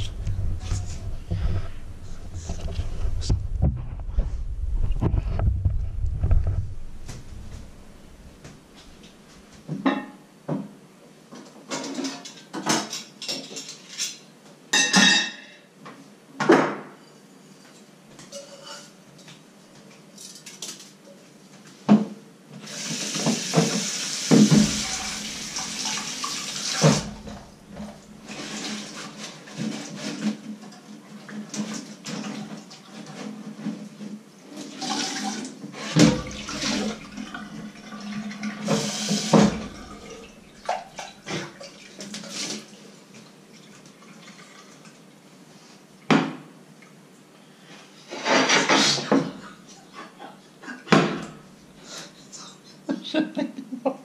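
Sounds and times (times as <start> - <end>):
pots clinking against steel: 18.2 - 19.0
water splashing: 24.2 - 28.8, 36.0 - 42.7.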